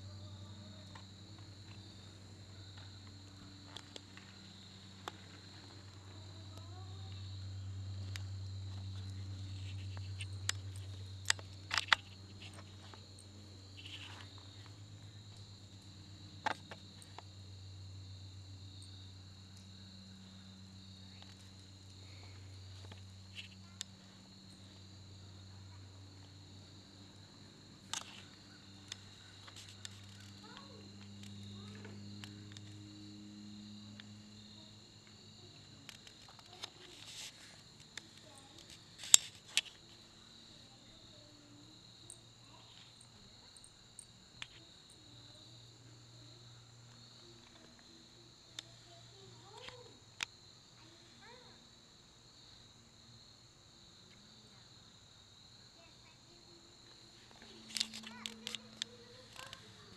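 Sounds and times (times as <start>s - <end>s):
low steady hum: 0.0s - 49.9s
crickets chirring: 0.0s - 59.9s
insects trilling: 0.0s - 59.9s.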